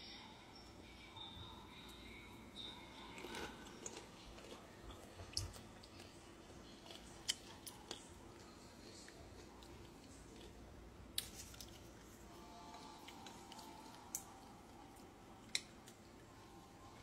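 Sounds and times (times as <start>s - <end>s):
person chewing: 3.0s - 12.0s.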